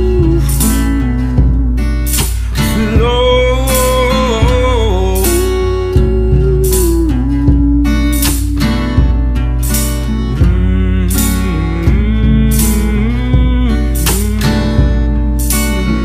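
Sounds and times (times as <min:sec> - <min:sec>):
bluesy guitar music: 0:00.0 - 0:16.0.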